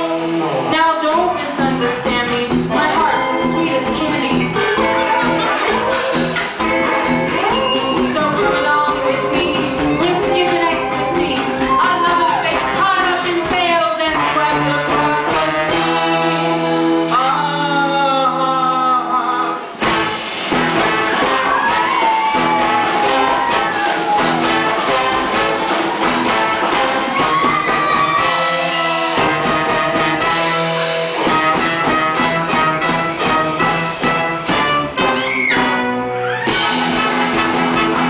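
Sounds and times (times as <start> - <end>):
horns: 0.0 - 17.5, 19.7 - 38.0
drums: 0.0 - 38.0
electric guitar: 0.0 - 38.0
woman singing: 0.7 - 4.6, 7.4 - 19.6.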